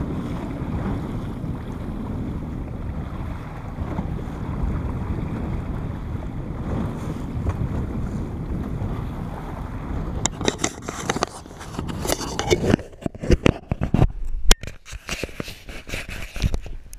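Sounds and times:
sea: 0.0s - 16.9s
wind noise on microphone: 0.0s - 16.9s
hand handling camera: 10.3s - 16.9s.

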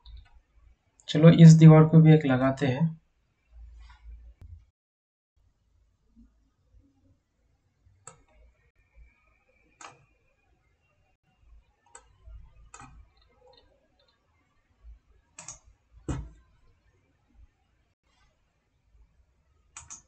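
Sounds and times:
computer mouse clicking: 8.0s - 8.5s, 9.8s - 10.1s, 11.9s - 14.2s, 15.4s - 16.4s, 19.8s - 20.0s.

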